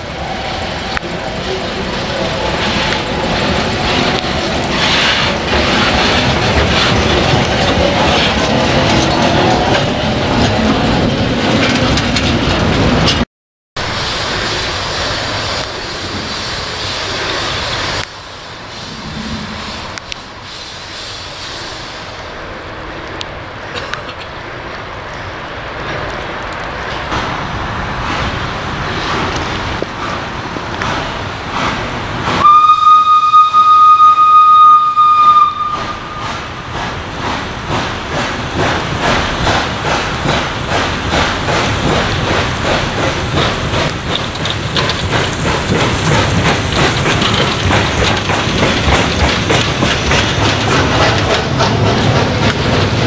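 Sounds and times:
wheels clicking over rail joints: 0:00.9 - 0:13.2, 0:36.7 - 0:53.0
steam whistle blast: 0:32.4 - 0:36.4.

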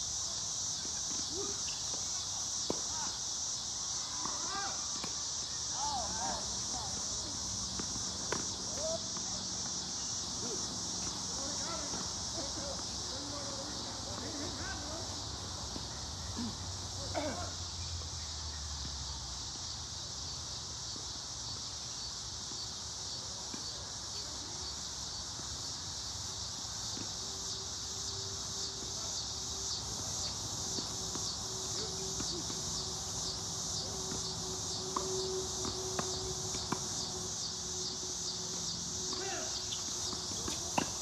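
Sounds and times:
insects buzzing: 0:00.0 - 0:41.0
rackets hitting tennis balls: 0:04.1 - 0:14.9, 0:29.8 - 0:41.0.

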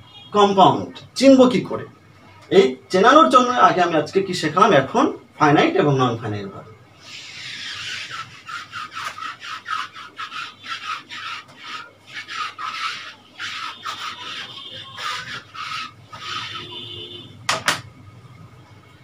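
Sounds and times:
eraser wiping whiteboard: 0:07.1 - 0:17.2
sharp knock: 0:17.5 - 0:17.8.

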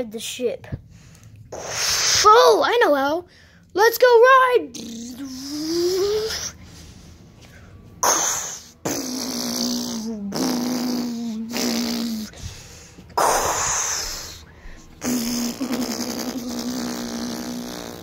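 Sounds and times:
child making spaceship mouth sounds: 0:01.6 - 0:02.8, 0:04.3 - 0:06.6, 0:08.0 - 0:12.4, 0:13.2 - 0:18.0.

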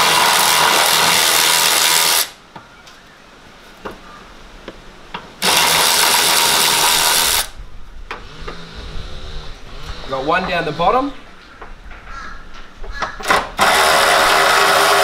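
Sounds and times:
cordless power driver spinning: 0:13.4 - 0:15.0.

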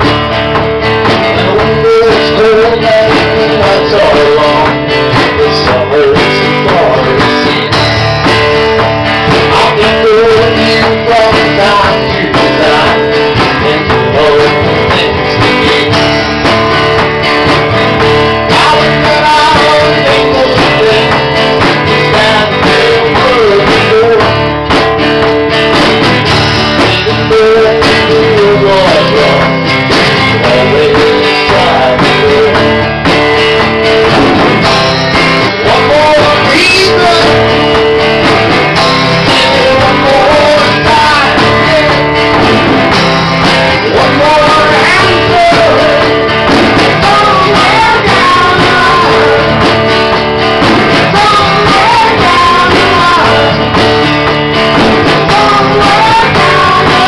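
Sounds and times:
drum kit: 0:00.0 - 0:57.0
electric bass: 0:00.0 - 0:57.0
strummed acoustic guitar: 0:00.0 - 0:57.0.

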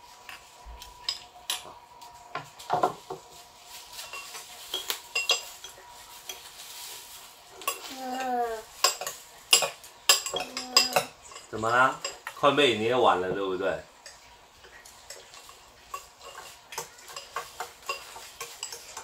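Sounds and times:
utensils clinking on ceramic bowls: 0:00.2 - 0:01.7, 0:03.9 - 0:06.6, 0:07.6 - 0:12.9, 0:14.0 - 0:19.0.

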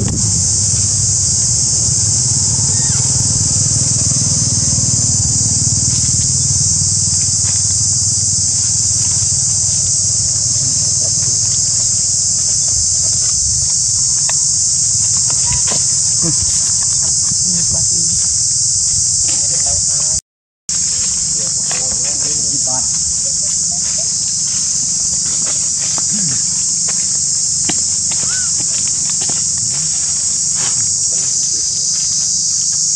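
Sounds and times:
constant low rumble: 0:00.0 - 0:32.4
high-pitched insect drone: 0:00.0 - 0:32.9.

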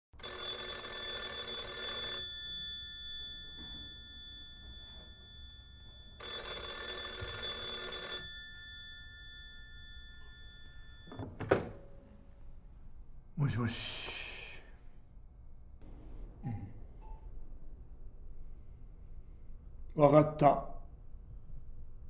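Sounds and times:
telephone bell ringing: 0:00.2 - 0:11.2.

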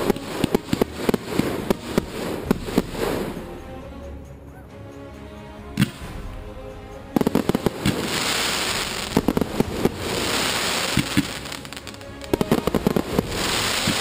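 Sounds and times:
fireworks bangs: 0:00.0 - 0:03.3, 0:07.2 - 0:14.0
fireworks hissing: 0:00.0 - 0:03.4, 0:07.2 - 0:14.0.

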